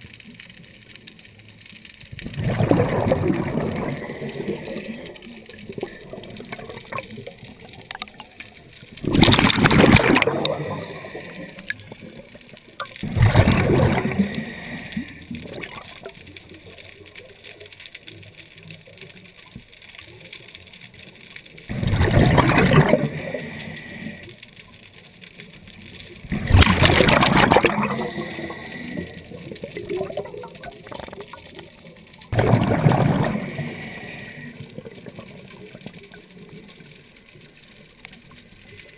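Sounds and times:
quiet gurgling: 0:00.0 - 0:38.9
underwater breath bubbles: 0:02.2 - 0:08.3, 0:09.0 - 0:16.2, 0:21.7 - 0:24.4, 0:26.2 - 0:31.5, 0:32.3 - 0:35.9.

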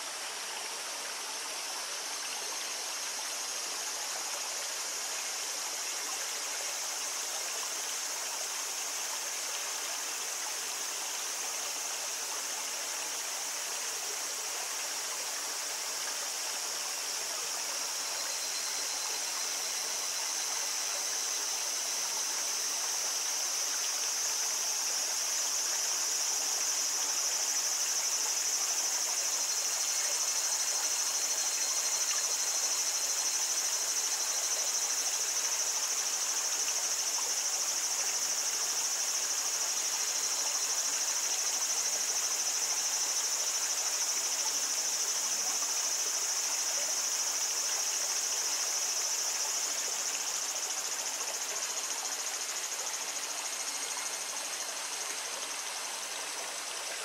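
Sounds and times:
small stream babbling: 0:00.0 - 0:57.0
cicadas singing: 0:11.6 - 0:57.0.

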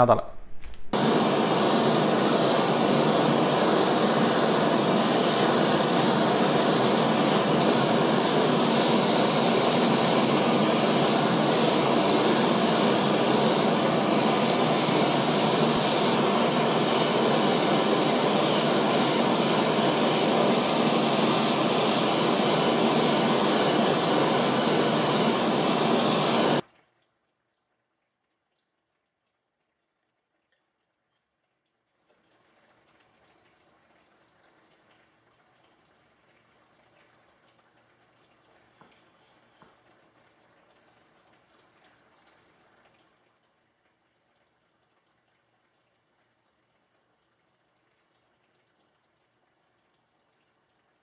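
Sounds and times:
blowtorch hissing: 0:00.8 - 0:26.6.

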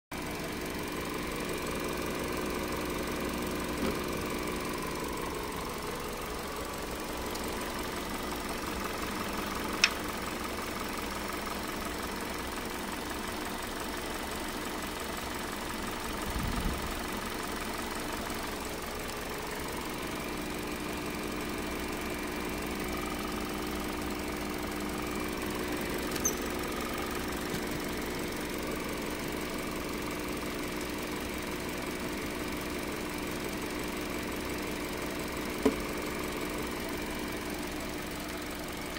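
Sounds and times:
car engine idling: 0:00.1 - 0:38.9
sharp click: 0:09.8 - 0:10.0.

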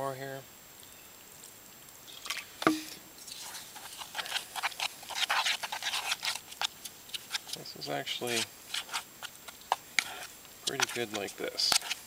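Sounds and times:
water trickling into flour: 0:02.0 - 0:07.9
dough stirred in metal pot: 0:03.2 - 0:12.0.

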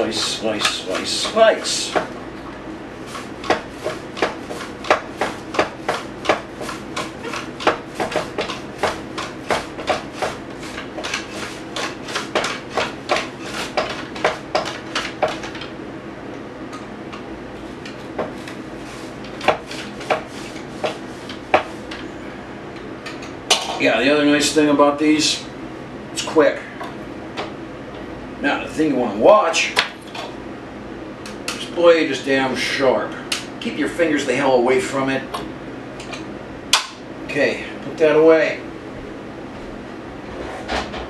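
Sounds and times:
onion sliced on a mandoline: 0:03.1 - 0:15.4, 0:18.2 - 0:21.9.

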